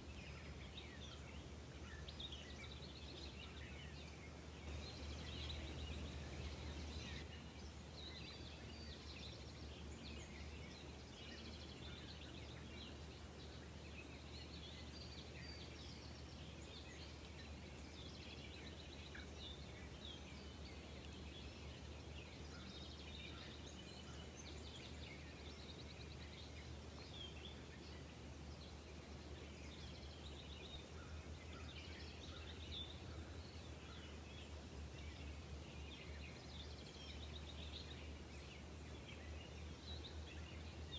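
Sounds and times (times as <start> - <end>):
distant songbirds chirping: 0.0 - 40.9
steady low hum: 4.6 - 7.2.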